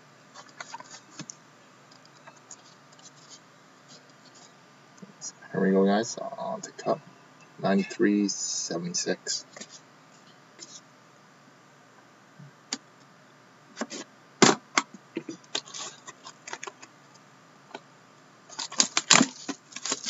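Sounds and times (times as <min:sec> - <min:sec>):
plastic wrap crinkling: 0:18.5 - 0:20.0.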